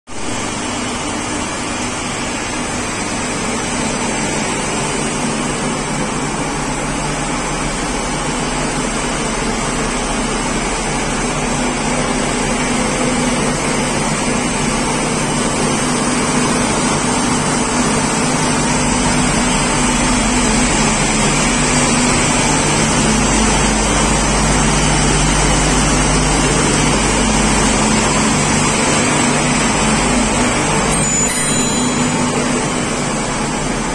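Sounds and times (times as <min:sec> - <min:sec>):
locomotive machinery hum and whir: 0:00.1 - 0:33.9
fixed tones: 0:30.9 - 0:33.8.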